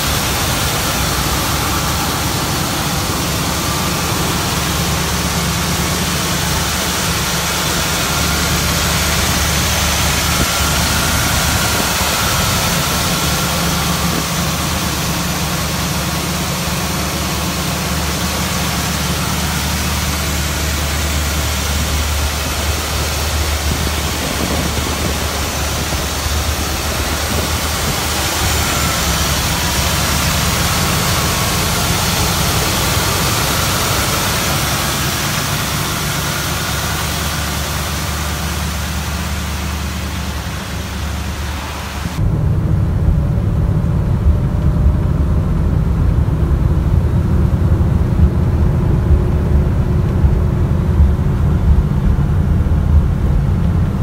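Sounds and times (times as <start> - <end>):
steady hiss: 0.0 - 42.2
car engine heard from inside cabin: 0.0 - 54.0
car engine idling: 0.0 - 54.0.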